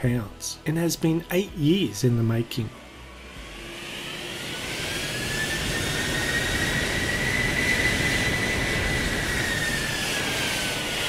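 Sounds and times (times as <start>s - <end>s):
jet engines whining: 2.8s - 11.0s.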